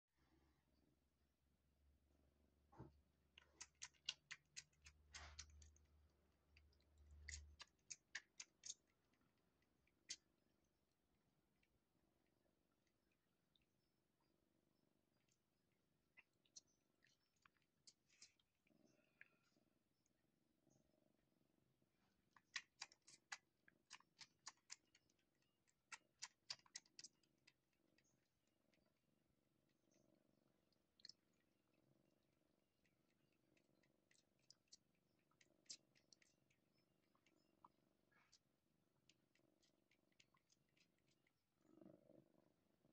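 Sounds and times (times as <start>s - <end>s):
kitten suckling wet clicks: 3.3s - 10.7s, 15.1s - 19.4s, 22.2s - 29.8s, 30.5s - 41.5s.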